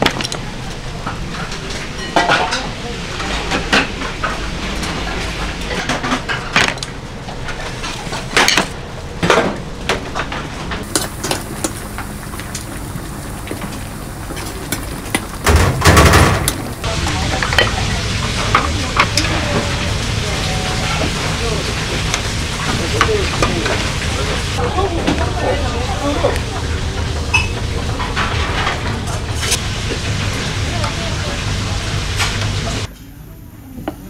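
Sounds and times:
metal dishes clinking: 1.4 - 4.4
steady low hum: 2.4 - 34.0.

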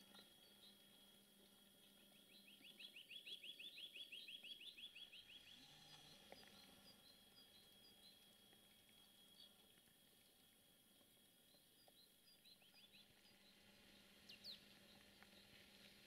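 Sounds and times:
songbird trill: 0.0 - 10.5, 11.3 - 16.0
high bird chirps: 2.1 - 5.6.

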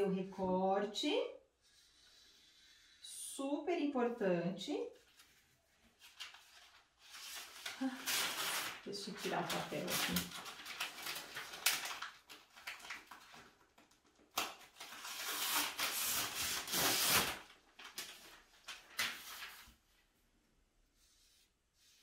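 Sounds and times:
paper rustling and crinkling: 5.0 - 20.0.

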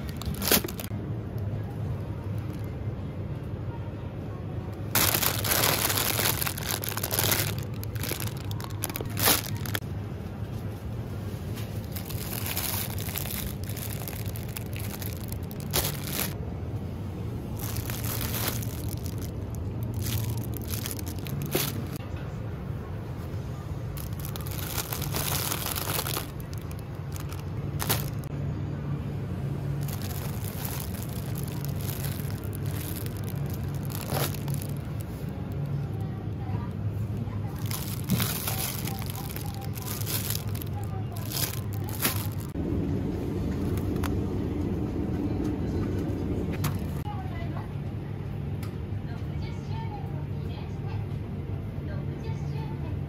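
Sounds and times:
packaging crinkling and rustling: 0.0 - 0.9, 4.9 - 9.8, 11.5 - 16.4, 17.6 - 22.0, 24.0 - 28.3, 29.8 - 35.3, 37.5 - 42.6.

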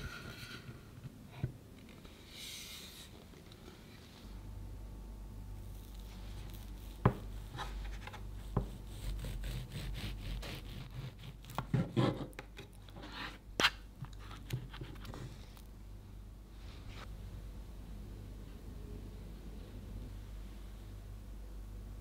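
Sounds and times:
low steady hum: 0.0 - 22.0
bread knife sawing through cake: 8.4 - 12.2.

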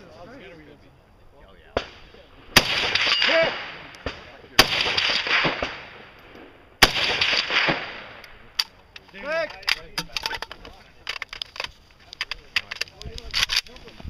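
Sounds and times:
echoing rifle shots: 1.8 - 8.6
faint cracks: 7.2 - 14.0.

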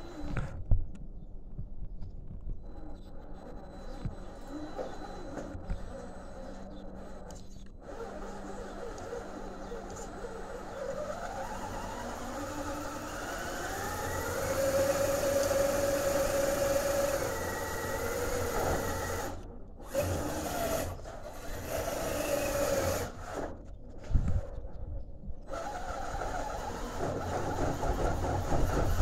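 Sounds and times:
electric motor and gears whining: 0.0 - 0.7, 2.4 - 24.6, 25.4 - 29.0.

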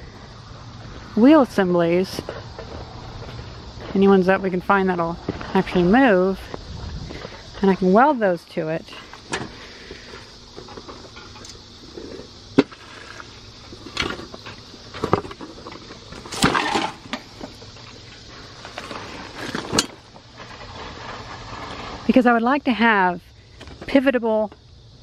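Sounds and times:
scrap metal clanking: 13.8 - 17.3.

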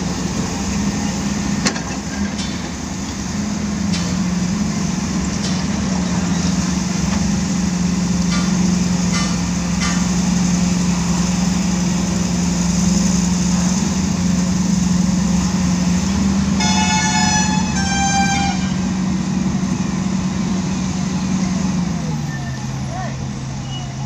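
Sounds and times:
vehicle engine hum: 0.0 - 24.0
horn blasts: 16.5 - 19.2.

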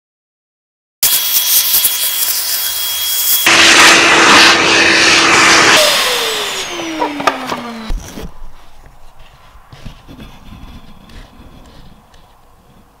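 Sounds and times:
vacuum cleaner sucking: 1.0 - 12.3
vacuum motor winding down: 1.1 - 8.3.

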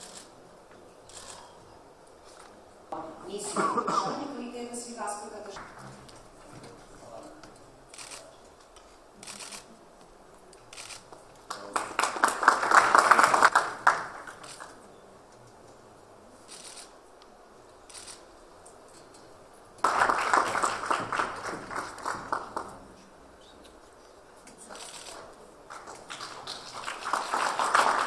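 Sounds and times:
audience applauding: 11.5 - 14.8, 19.8 - 23.0, 25.7 - 28.0.

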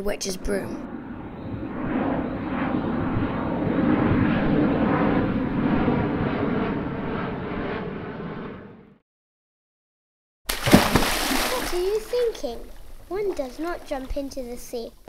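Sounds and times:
rushing rumbling air: 0.8 - 9.0.

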